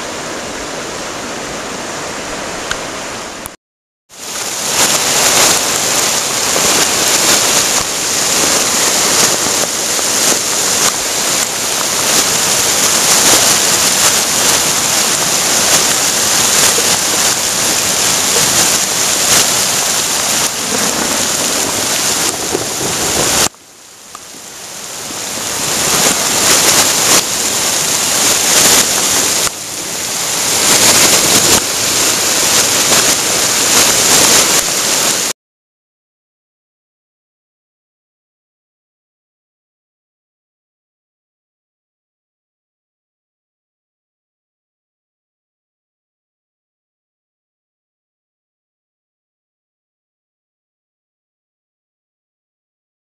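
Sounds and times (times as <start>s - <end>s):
heavy hail pelting: 4.3s - 23.5s, 24.3s - 35.3s.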